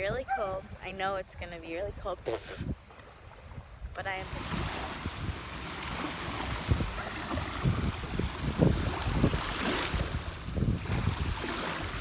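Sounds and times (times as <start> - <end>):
wind buffeting microphone: 0.0 - 12.0
small waves washing on sand: 2.5 - 12.0.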